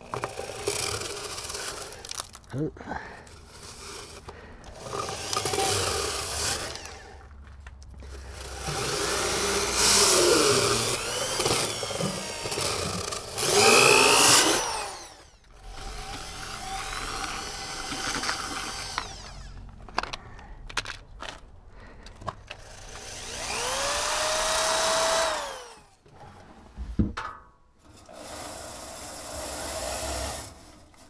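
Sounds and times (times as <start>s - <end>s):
power drill spinning brush in duct: 0.0s - 2.4s, 3.2s - 7.2s, 8.0s - 19.6s, 22.6s - 26.0s, 28.0s - 31.0s.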